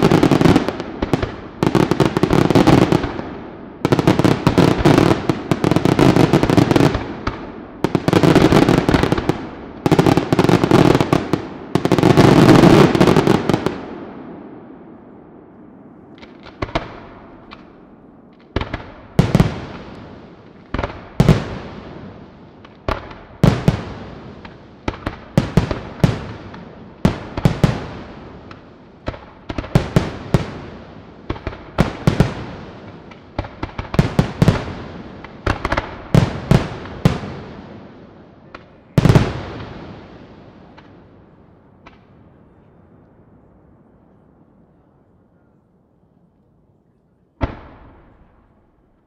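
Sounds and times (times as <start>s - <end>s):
light firework pops: 16.1s - 21.4s, 22.6s - 23.8s, 38.5s - 39.3s, 40.7s - 41.0s, 41.8s - 43.2s, 47.4s - 49.0s.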